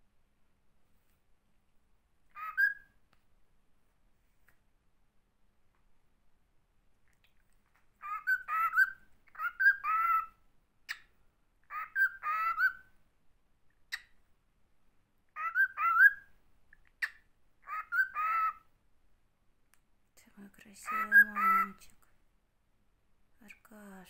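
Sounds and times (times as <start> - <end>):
cockatiel chattering: 2.4 - 2.8, 8.0 - 10.3, 11.7 - 12.8, 15.4 - 16.2, 17.0 - 18.6
sharp bird clicks: 10.8 - 11.2, 16.7 - 17.3.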